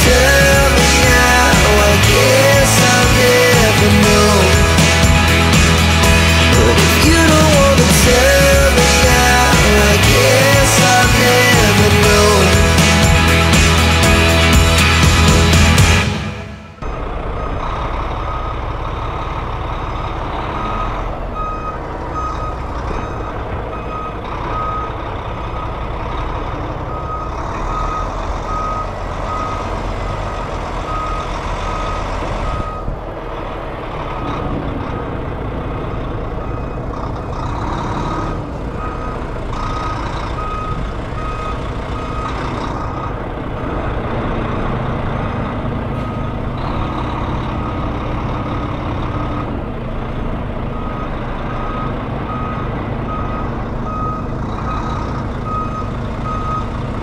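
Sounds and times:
diesel truck engine running: 0.0 - 57.0
back-up alarm beeping: 20.6 - 25.0, 26.9 - 32.9, 38.8 - 43.2, 50.7 - 56.8.

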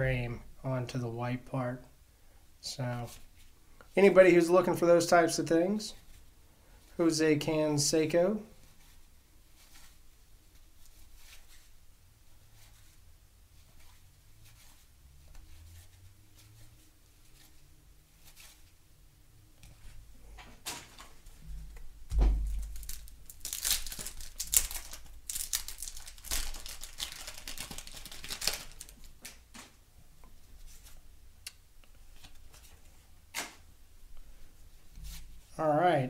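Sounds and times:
soft thump: 22.1 - 22.6
wax paper wrapper tearing: 22.5 - 29.4.

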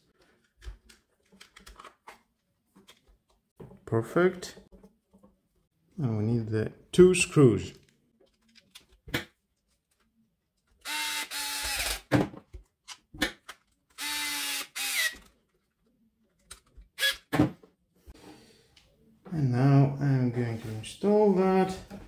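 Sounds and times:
electric screwdriver motor: 10.8 - 12.0, 14.0 - 15.2.

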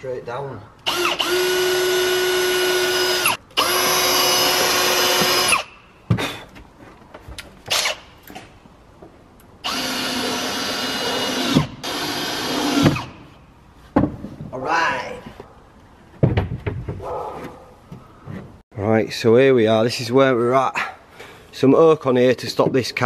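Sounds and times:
drill-driver whine: 0.9 - 5.7, 9.6 - 13.1.

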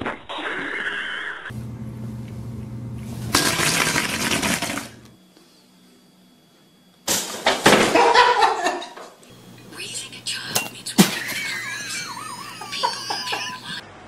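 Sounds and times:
steady low hum: 1.5 - 7.4, 9.2 - 13.8.

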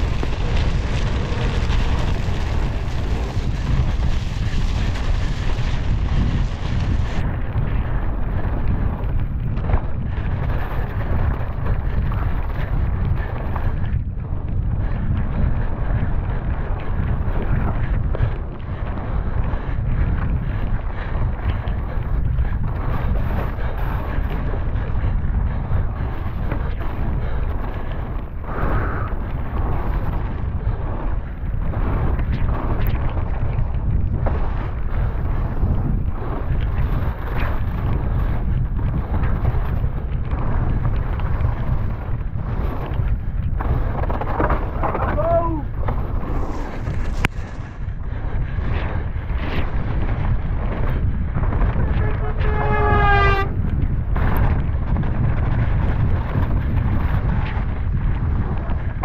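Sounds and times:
tyres hissing on dirt trail: 0.0 - 7.2, 45.5 - 48.0
mountain bike rumbling over dirt: 0.0 - 59.0
wind buffeting microphone: 0.0 - 59.0
person calling out: 44.9 - 45.7.

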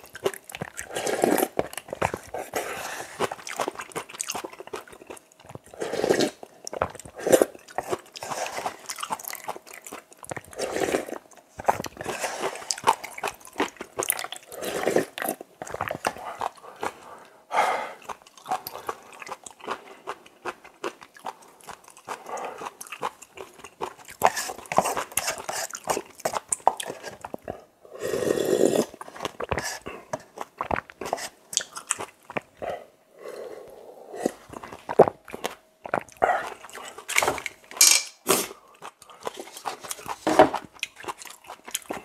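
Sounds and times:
chewing: 0.0 - 42.0
slurping noodles and broth: 0.6 - 4.0, 5.6 - 6.5, 7.1 - 9.6, 10.3 - 17.0, 23.9 - 31.9.

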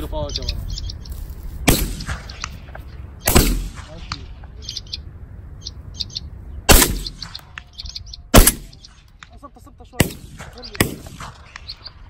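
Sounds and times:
high bird chirps: 0.0 - 3.4, 4.2 - 12.0
shotgun shots: 1.6 - 2.6, 3.2 - 4.4, 6.7 - 7.7, 8.3 - 9.1, 10.0 - 11.7.

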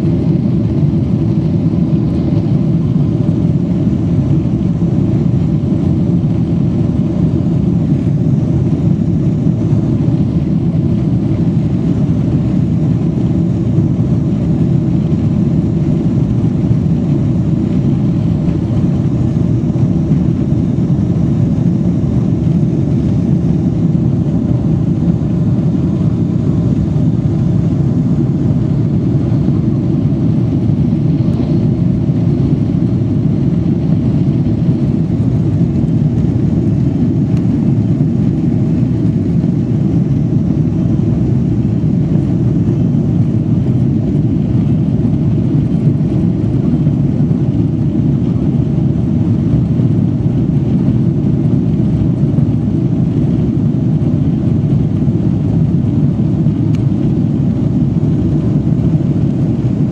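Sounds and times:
jet engines at takeoff: 0.0 - 59.9.

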